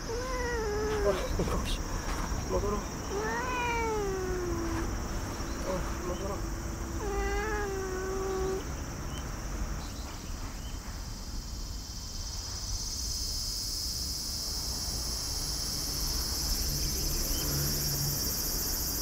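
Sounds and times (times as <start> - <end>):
cat meowing: 0.0 - 1.7, 3.1 - 4.9, 7.0 - 8.7
low outdoor rumble: 0.0 - 11.3
insects chirring high-pitched: 0.0 - 19.0.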